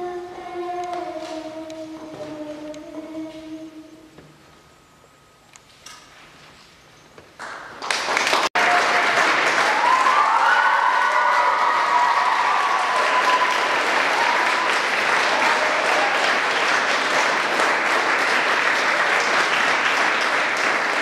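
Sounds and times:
audience applauding: 0:07.4 - 0:21.0.

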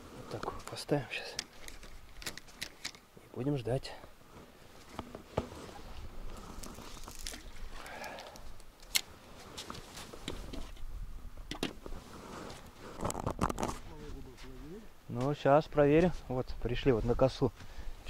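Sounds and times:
rustling: 0:01.4 - 0:03.1, 0:04.3 - 0:10.9.

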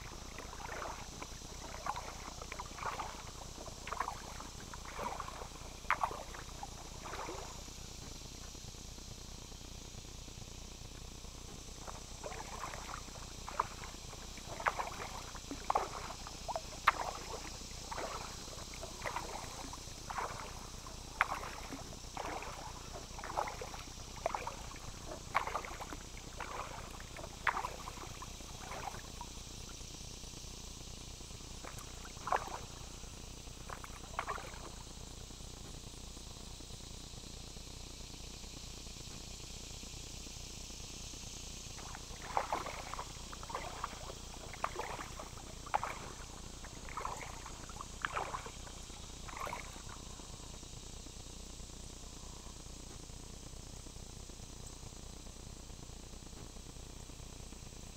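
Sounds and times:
paddle splashing in water: 0:00.0 - 0:07.7, 0:11.8 - 0:29.3, 0:31.6 - 0:32.8, 0:33.6 - 0:34.8, 0:41.8 - 0:50.0
insect buzz: 0:00.0 - 0:57.9.

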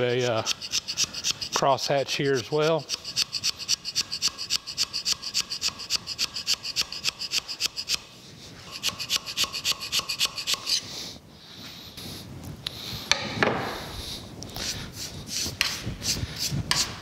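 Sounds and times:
hand scraper rasping on metal: 0:00.0 - 0:08.0, 0:08.7 - 0:10.8, 0:15.3 - 0:17.0.

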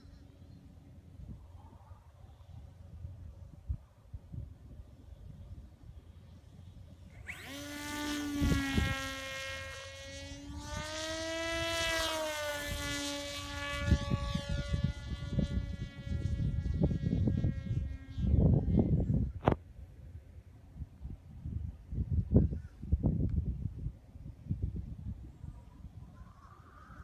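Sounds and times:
electric motor and propeller whining: 0:00.0 - 0:19.6
wind rumbling on microphone: 0:00.0 - 0:27.0.

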